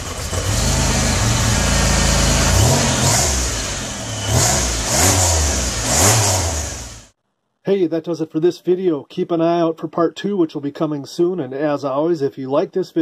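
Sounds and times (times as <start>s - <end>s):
car engine idling and revving: 0.0s - 7.2s.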